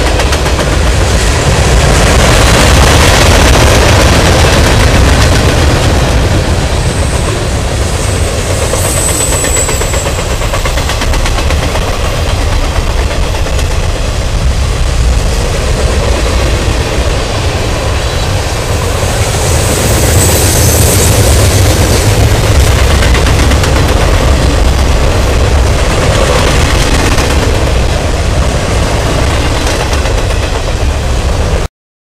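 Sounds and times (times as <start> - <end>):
freight train wheels rumbling on rail: 0.0 - 31.7
faint high squeal: 8.7 - 10.2.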